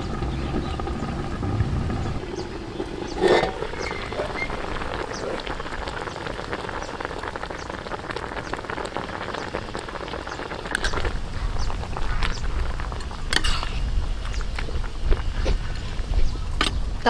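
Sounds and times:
braising liquid bubbling and crackling: 0.0s - 17.0s
metal pot lid clanking: 3.2s - 4.8s.

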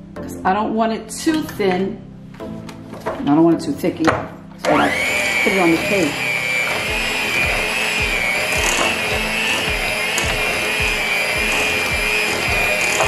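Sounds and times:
electric hand mixer whining: 4.6s - 13.0s.

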